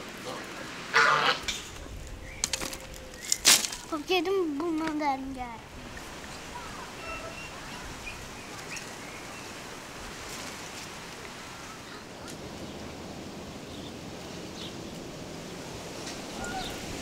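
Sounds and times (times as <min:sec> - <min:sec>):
outdoor background hiss: 0:00.0 - 0:17.0
birds chirping: 0:01.0 - 0:09.8, 0:16.3 - 0:17.0.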